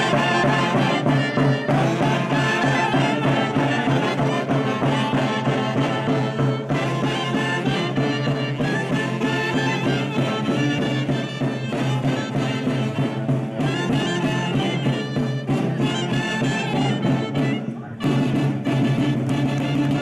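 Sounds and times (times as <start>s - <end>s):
saxophones and clarinets melody: 0.0s - 20.0s.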